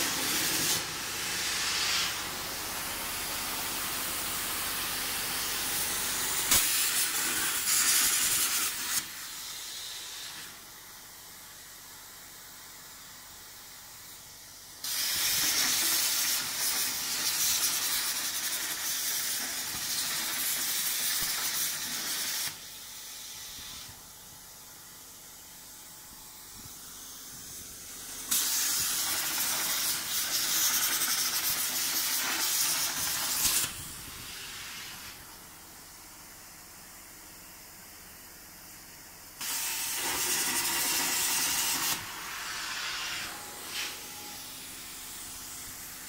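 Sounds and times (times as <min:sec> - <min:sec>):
plasma cutter hissing: 0:00.0 - 0:11.3, 0:14.8 - 0:24.7, 0:26.6 - 0:35.4, 0:39.4 - 0:46.0.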